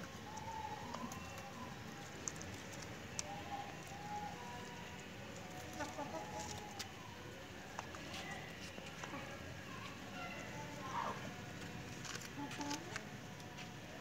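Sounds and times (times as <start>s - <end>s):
chickens clucking: 0.0s - 7.1s.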